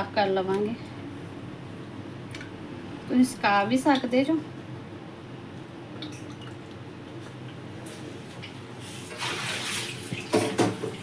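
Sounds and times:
steady low hum: 0.0s - 9.1s.

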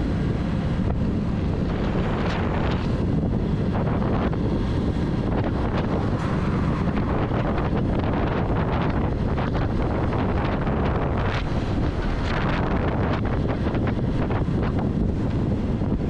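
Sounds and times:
road noise: 0.0s - 16.0s
wind buffeting microphone: 0.0s - 16.0s.

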